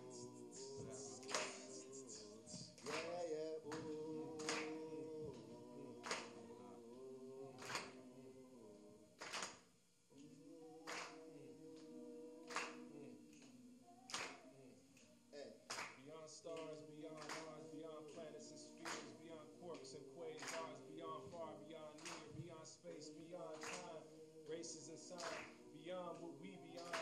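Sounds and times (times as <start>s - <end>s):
a cappella singing: 0.0s - 27.0s
hand clap: 0.6s - 6.4s, 7.6s - 8.0s, 9.2s - 10.3s, 10.9s - 11.2s, 12.5s - 13.5s, 14.1s - 14.4s, 15.7s - 17.6s, 18.8s - 20.8s, 22.0s - 22.4s, 23.5s - 23.9s, 25.2s - 25.6s, 26.8s - 27.0s.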